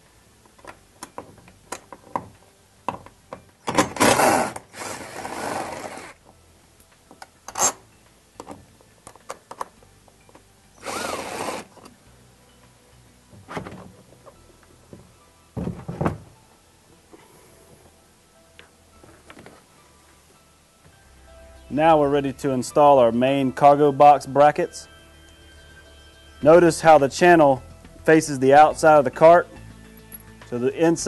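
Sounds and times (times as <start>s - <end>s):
cordless drill whining: 4.0s - 6.2s, 10.8s - 11.8s.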